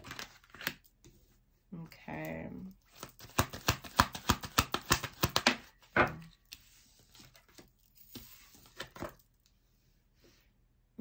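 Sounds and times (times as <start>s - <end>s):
cards rustling and sliding: 0.0s - 1.2s, 2.9s - 9.4s
cards slapping while shuffled: 2.9s - 5.9s.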